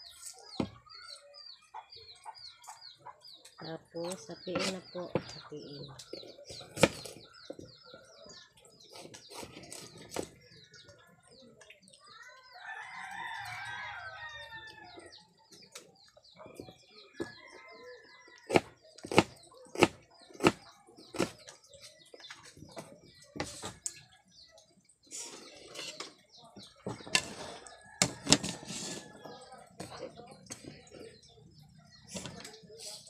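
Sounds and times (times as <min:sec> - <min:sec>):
small birds chirping: 0:00.0 - 0:33.0
knife chopping on plastic board: 0:18.5 - 0:21.4.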